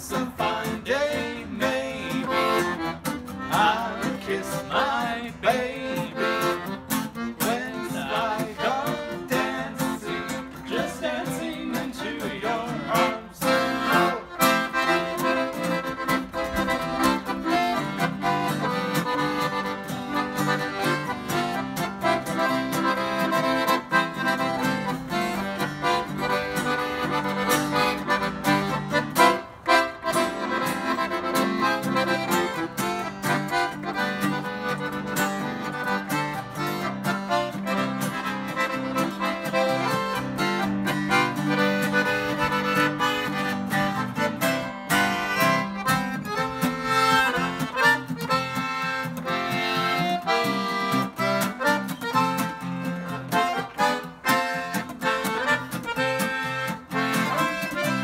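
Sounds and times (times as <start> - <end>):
acoustic guitar accompaniment: 0.0 - 58.0
piano accordion playing polka: 0.0 - 58.0.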